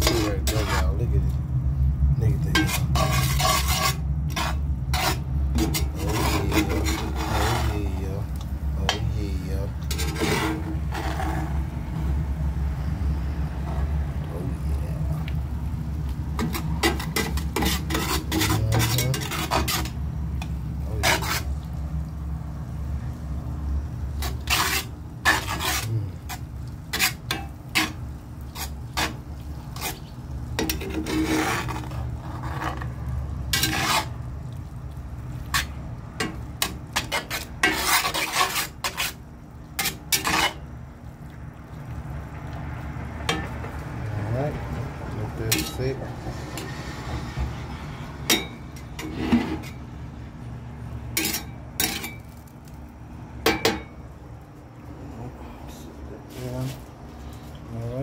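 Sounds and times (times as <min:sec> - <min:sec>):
spatula scraping skillet: 0:00.0 - 0:01.4, 0:02.3 - 0:12.2, 0:16.1 - 0:21.8, 0:24.1 - 0:34.7, 0:35.3 - 0:40.7, 0:43.2 - 0:43.9, 0:45.3 - 0:49.9, 0:51.1 - 0:52.4
steady low hum: 0:00.0 - 0:58.0.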